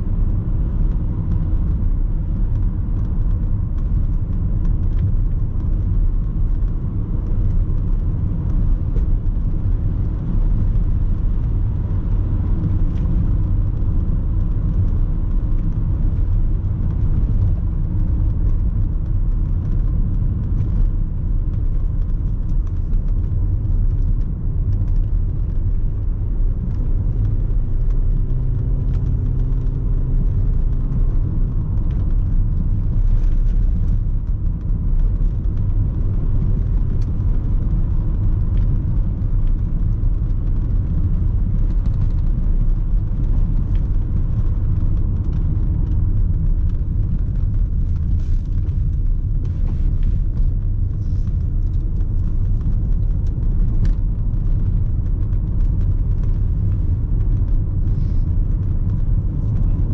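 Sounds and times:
car engine and tyres rumbling: 0.0 - 59.9
faint engine hum: 0.0 - 59.9.

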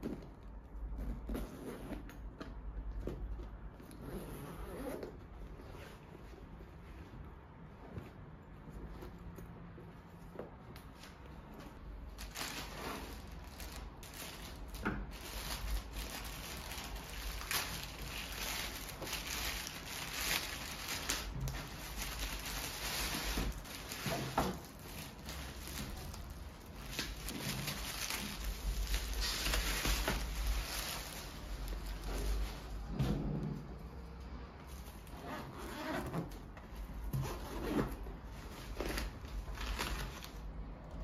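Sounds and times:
plastic bag crinkling: 12.0 - 32.9.

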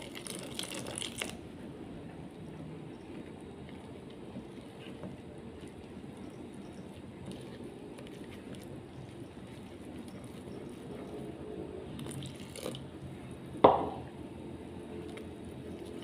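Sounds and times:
spatula squelching in batter: 2.5 - 12.4.

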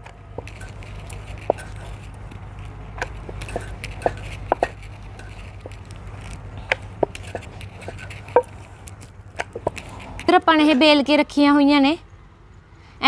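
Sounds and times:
rolling pin tapping metal plate: 0.4 - 2.0, 3.0 - 6.0, 6.7 - 8.6
rolling pin rolling dough: 0.4 - 8.7.

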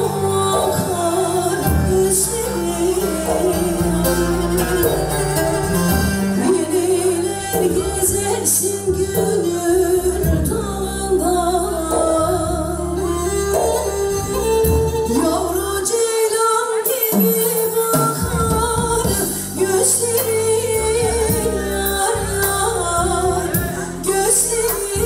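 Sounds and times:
saz playing: 0.0 - 15.9
woman singing into a microphone: 0.0 - 25.0.

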